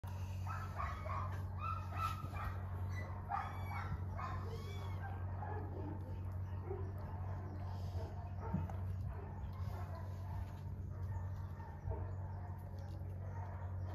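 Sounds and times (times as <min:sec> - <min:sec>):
low hum: 0:00.0 - 0:13.9
kittens mewing: 0:03.2 - 0:06.1.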